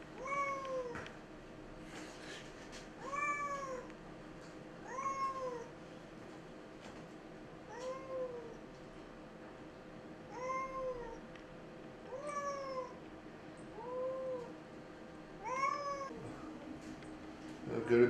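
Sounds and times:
cat meowing: 0:00.2 - 0:01.0, 0:03.0 - 0:03.9, 0:04.9 - 0:05.7, 0:07.7 - 0:08.6, 0:10.3 - 0:11.2, 0:12.1 - 0:13.0, 0:13.8 - 0:14.5, 0:15.4 - 0:16.2.

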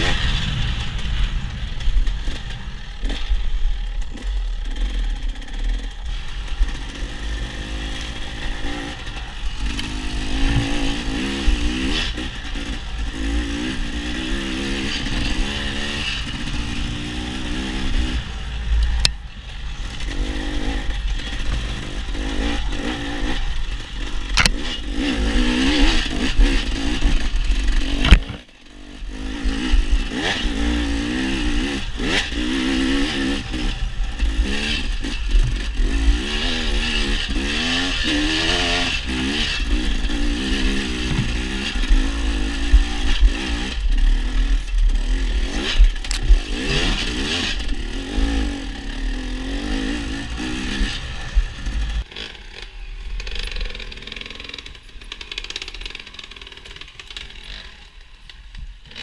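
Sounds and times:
heavy low rumble: 0:00.0 - 0:07.6, 0:15.1 - 0:24.5, 0:48.6 - 0:52.1
dirt bike engine revving: 0:00.0 - 0:58.1.

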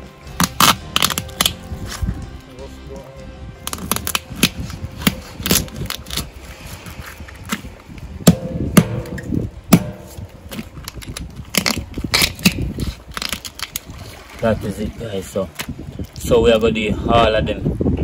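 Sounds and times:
knife cracking lobster shells: 0:00.4 - 0:01.6, 0:10.5 - 0:13.9.

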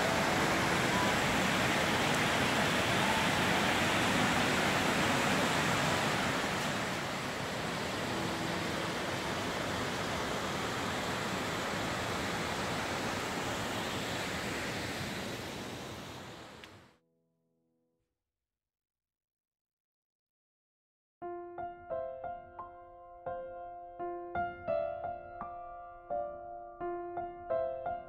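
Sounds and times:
rushing flowing water: 0:00.0 - 0:16.8.

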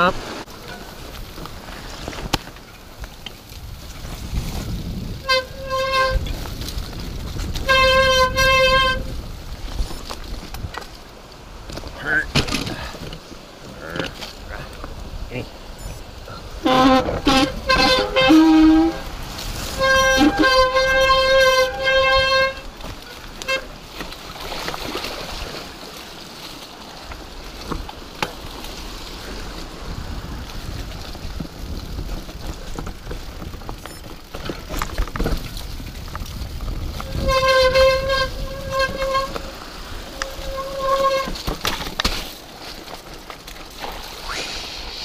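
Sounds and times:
tyres rumbling on rough trail: 0:00.0 - 0:45.0
bike knocking over bumps: 0:30.8 - 0:39.4, 0:40.2 - 0:43.8
bike brakes squealing: 0:40.2 - 0:41.4.

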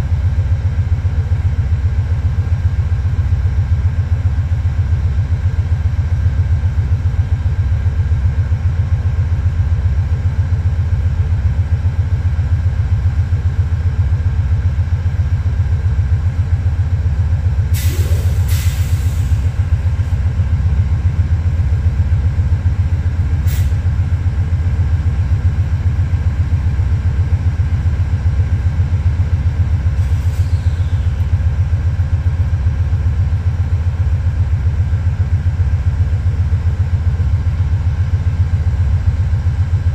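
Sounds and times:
diesel locomotive engine rumbling: 0:00.0 - 0:39.9
burst of hiss: 0:17.8 - 0:19.4.

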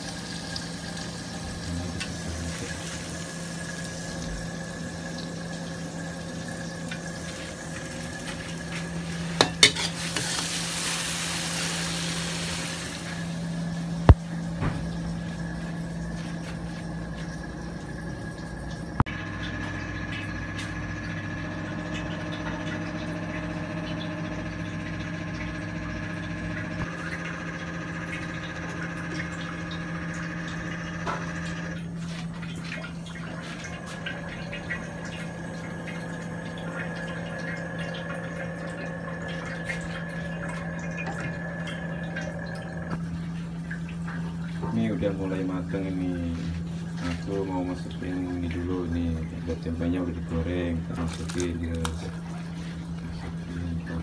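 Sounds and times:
steady hum: 0:00.0 - 0:54.0
food sizzling in a wok: 0:08.8 - 0:13.6.

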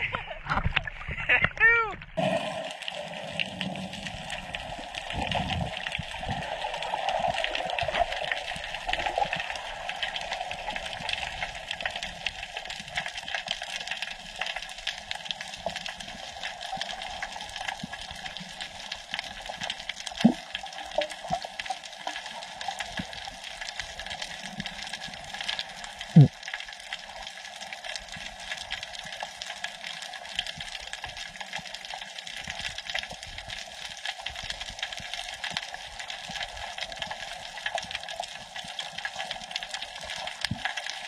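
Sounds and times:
muffled underwater hiss: 0:02.2 - 0:12.6.

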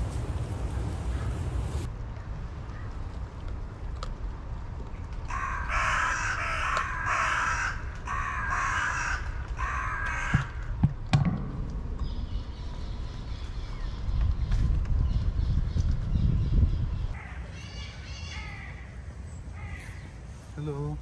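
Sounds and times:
crow cawing: 0:05.3 - 0:10.8, 0:17.2 - 0:19.0, 0:19.6 - 0:20.0.

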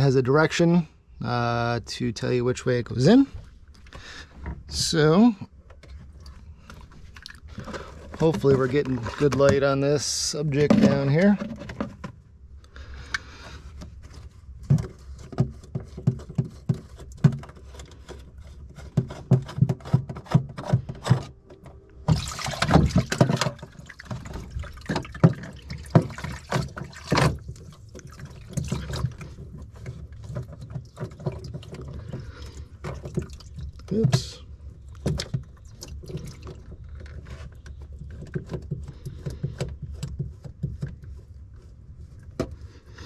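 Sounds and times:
plastic fittings knocking and clicking: 0:14.6 - 0:21.3, 0:34.9 - 0:41.2
water gushing into bilge: 0:22.1 - 0:29.4.

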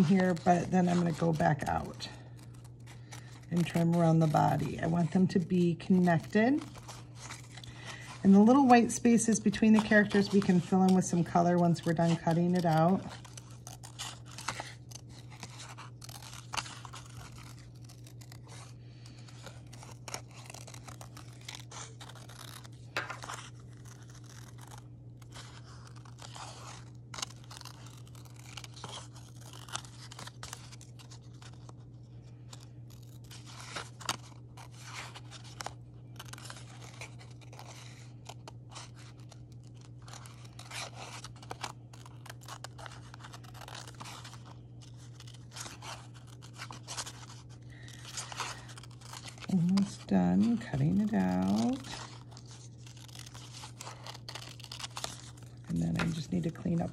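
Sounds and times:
scissors snipping paper: 0:00.0 - 0:31.8, 0:32.5 - 0:56.9.

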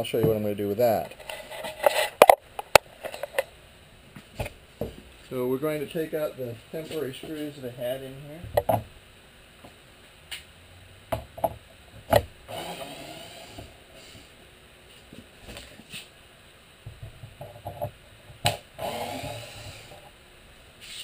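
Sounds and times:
drill-driver backing out screws: 0:18.5 - 0:20.0.

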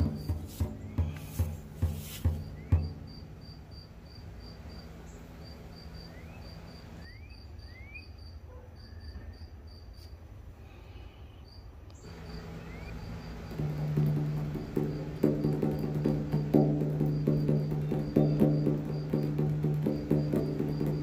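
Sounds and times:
insect chirping: 0:00.0 - 0:21.0.

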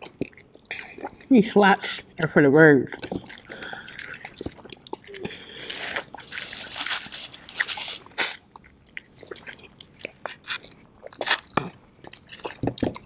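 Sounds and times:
chewing and crunching chicken wings: 0:02.9 - 0:13.0.

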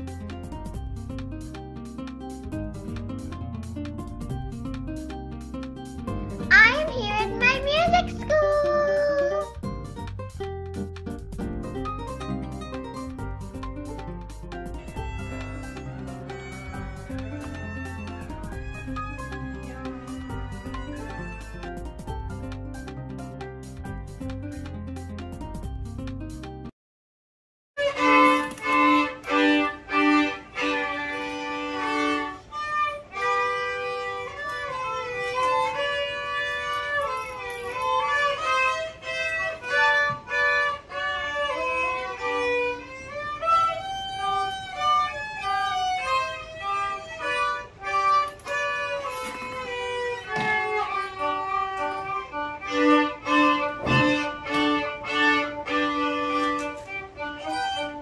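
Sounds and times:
two violins playing melody: 0:14.7 - 0:22.1, 0:27.8 - 0:58.0.

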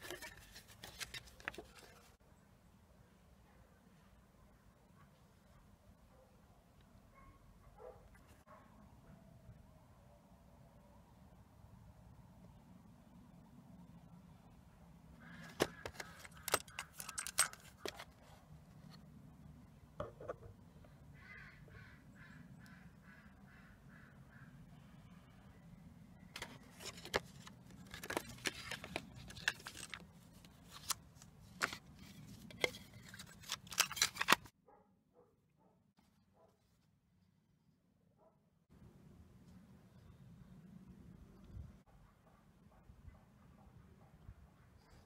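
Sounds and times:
paper insert rustling: 0:00.0 - 0:02.2, 0:15.4 - 0:19.1, 0:26.4 - 0:34.5
plastic cassette case clicking: 0:15.4 - 0:18.1, 0:26.4 - 0:30.0, 0:32.5 - 0:34.5.

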